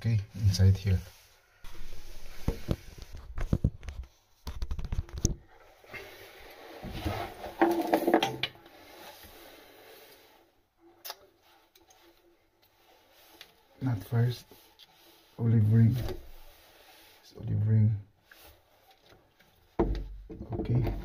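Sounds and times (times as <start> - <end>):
rustling and scraping: 0.4 - 10.4, 11.3 - 17.6
pipe fittings clicking and knocking: 7.5 - 8.6, 19.0 - 21.0.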